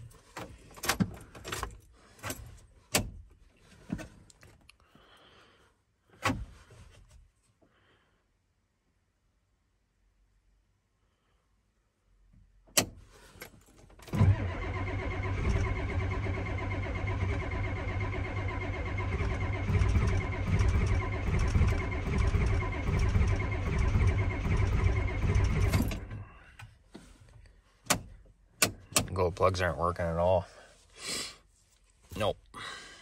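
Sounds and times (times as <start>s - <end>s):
diesel engine cranking: 14.0s - 26.4s.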